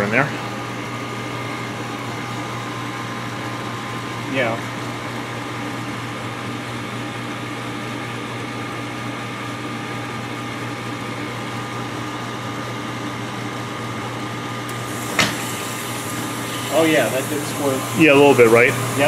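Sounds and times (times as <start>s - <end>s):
dishwasher motor hum: 0.0s - 19.0s
water hissing in: 14.8s - 19.0s.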